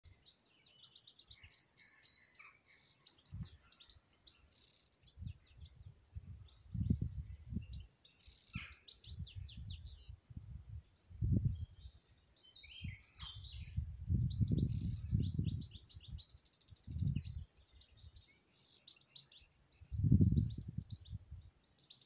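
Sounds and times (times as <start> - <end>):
songbirds singing: 0.0 - 22.0
wind buffeting microphone: 3.2 - 3.6, 5.1 - 7.9, 8.5 - 12.0, 12.6 - 18.2, 19.8 - 21.6.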